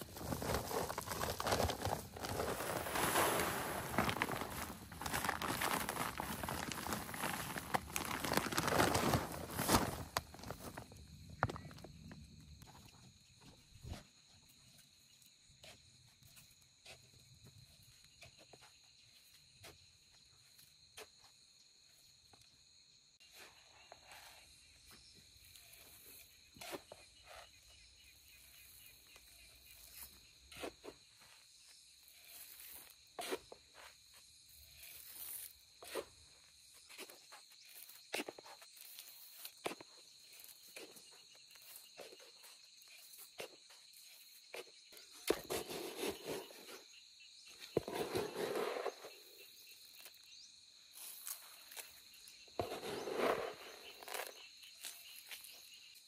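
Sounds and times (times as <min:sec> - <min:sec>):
rustling and scraping: 0:00.0 - 0:11.8, 0:44.6 - 0:50.2, 0:51.0 - 0:55.8
footsteps on loose soil: 0:00.0 - 0:11.9
high insect trill: 0:00.0 - 0:56.0.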